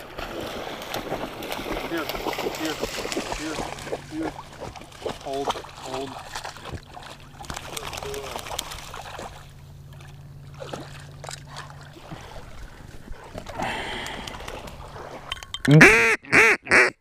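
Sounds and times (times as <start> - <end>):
duck quacks: 15.7 - 17.0.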